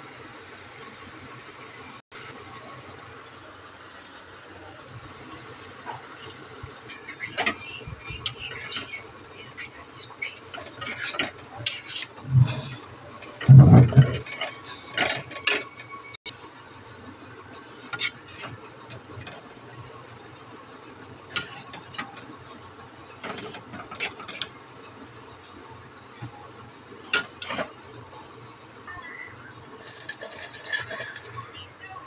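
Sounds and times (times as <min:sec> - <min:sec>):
spatula scraping metal pan: 0:10.5 - 0:15.8, 0:17.9 - 0:18.6, 0:29.8 - 0:31.4.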